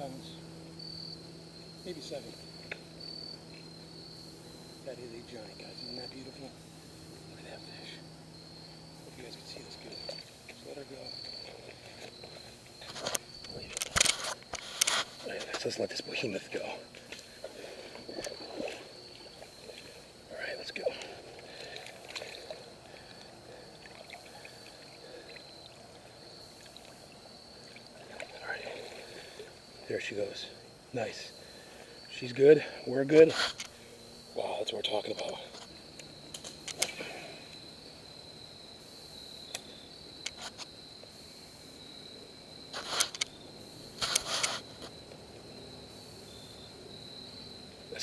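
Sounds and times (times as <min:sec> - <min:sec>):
insects trilling: 0:00.0 - 0:48.0
water sloshing: 0:14.6 - 0:29.6
water trickling: 0:15.6 - 0:30.1
water splashing: 0:17.0 - 0:29.6.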